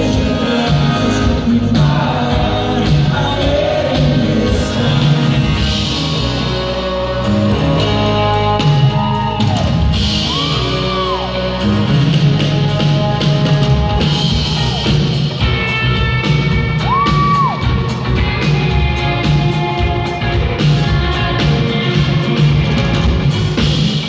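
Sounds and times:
person singing: 0:00.0 - 0:09.2
live rock band playing: 0:00.0 - 0:24.0.

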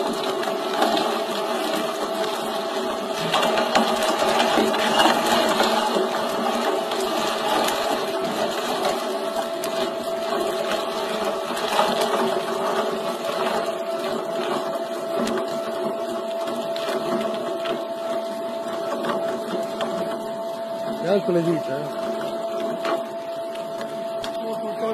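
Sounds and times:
electric meat grinder motor whining: 0:00.0 - 0:24.9.

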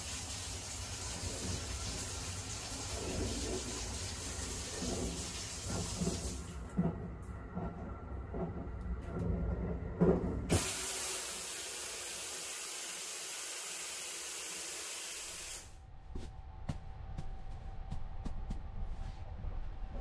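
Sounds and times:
running water hiss: 0:00.0 - 0:06.5, 0:10.5 - 0:15.7
train rumble: 0:04.5 - 0:10.6, 0:16.0 - 0:20.0.

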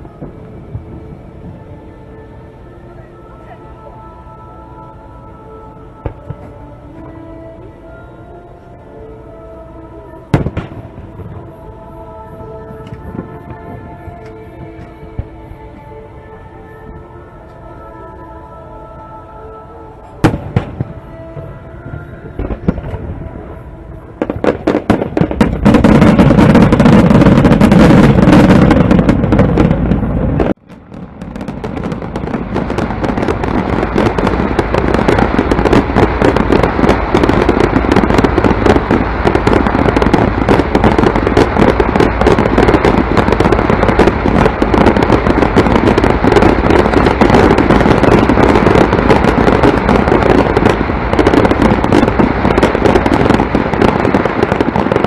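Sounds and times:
fireworks bangs and crackling: 0:06.0 - 0:06.6, 0:10.3 - 0:11.6, 0:20.2 - 0:55.0.

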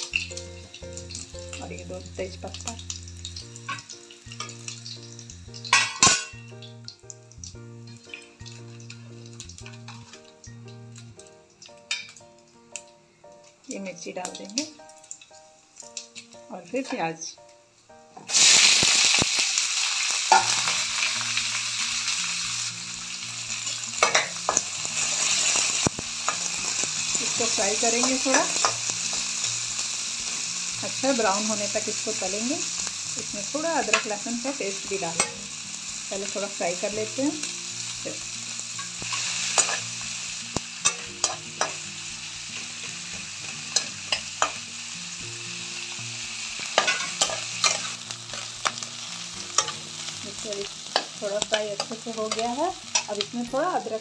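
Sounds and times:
onions sizzling in hot oil: 0:00.0 - 0:54.0
metal spatula clicking on pan: 0:24.0 - 0:24.6, 0:35.2 - 0:35.4, 0:40.5 - 0:41.8, 0:46.8 - 0:48.8, 0:49.6 - 0:49.8, 0:50.9 - 0:53.2
metal spatula scraping pan: 0:46.8 - 0:48.8.

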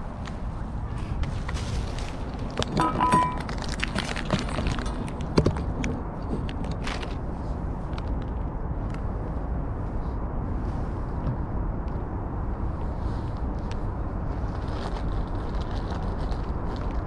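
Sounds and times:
low outdoor rumble: 0:00.0 - 0:17.0
dish knocking on ground: 0:02.7 - 0:03.5
metal dish clinking: 0:02.8 - 0:03.5.

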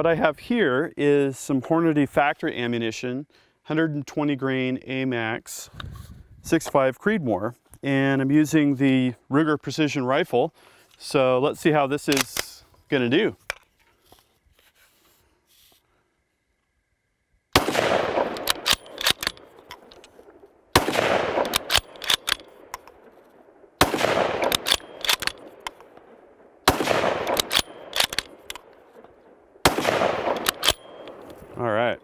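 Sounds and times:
rifle bolt metallic clicks: 0:12.0 - 0:12.6, 0:17.8 - 0:26.1, 0:26.7 - 0:31.5
rifle shots: 0:17.6 - 0:31.5.

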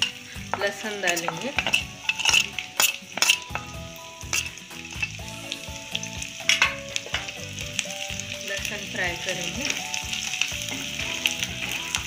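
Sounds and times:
steel spoon scraping a pan: 0:00.0 - 0:05.2, 0:06.4 - 0:07.4
garlic sizzling in hot oil: 0:00.0 - 0:12.0.

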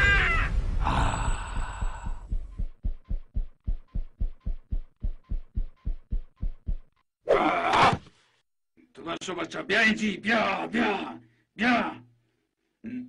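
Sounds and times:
dull rhythmic thumping: 0:01.5 - 0:07.0.

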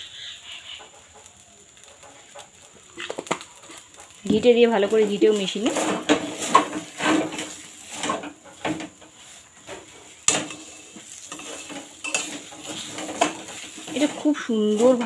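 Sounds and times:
metal spatula scraping metal pan: 0:04.8 - 0:15.0.

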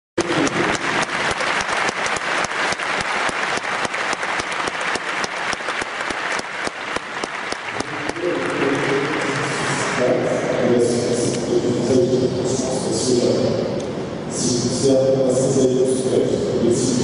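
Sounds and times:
audience applauding: 0:00.2 - 0:10.1.

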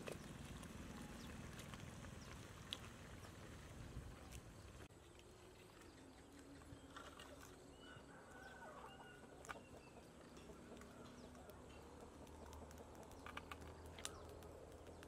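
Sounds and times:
faint chicken clucking: 0:05.8 - 0:15.0
sharp clicks: 0:11.4 - 0:15.0.

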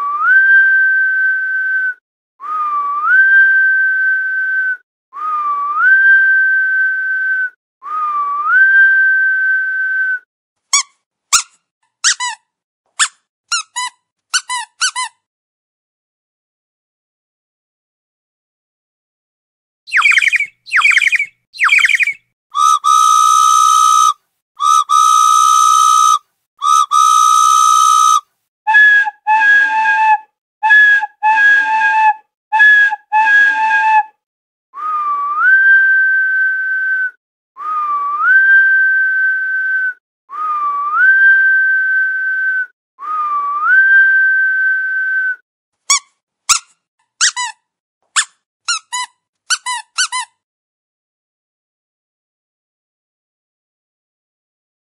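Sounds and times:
quick warbling chirps: 0:19.9 - 0:23.0
whistle sound effects: 0:19.9 - 0:34.1, 0:34.8 - 0:45.4.

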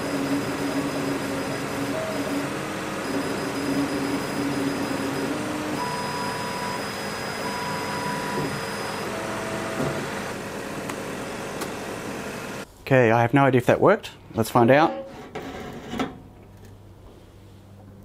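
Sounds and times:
short whines of cutting head: 0:00.0 - 0:10.2
laser cutter whirring: 0:00.0 - 0:12.6.

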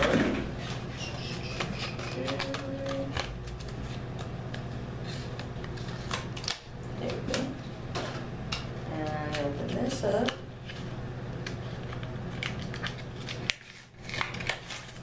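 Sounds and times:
scissors snipping plastic packaging: 0:01.5 - 0:04.2, 0:11.4 - 0:15.0.

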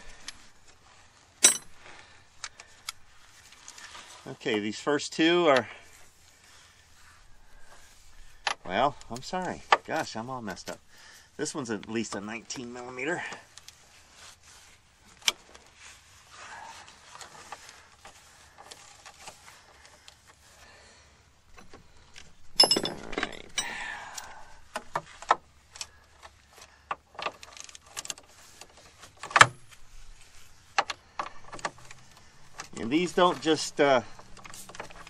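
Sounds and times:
tools scraping clatter: 0:01.2 - 0:02.0, 0:21.6 - 0:35.0
steel tools clinking: 0:01.4 - 0:01.8, 0:22.6 - 0:24.3
metal clank: 0:22.6 - 0:23.8.

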